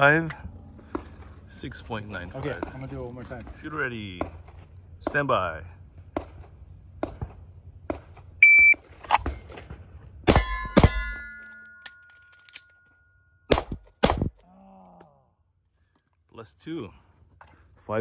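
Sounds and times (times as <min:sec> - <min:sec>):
shot timer beep: 0:08.4 - 0:08.8
handgun shots: 0:13.5 - 0:14.4.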